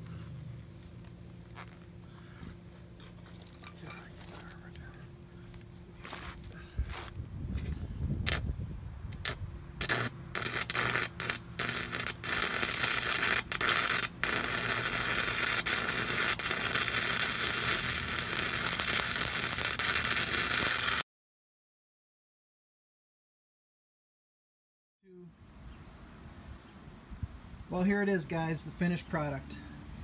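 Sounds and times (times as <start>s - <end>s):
arc welding crackle: 8.2s - 8.4s, 9.2s - 21.0s.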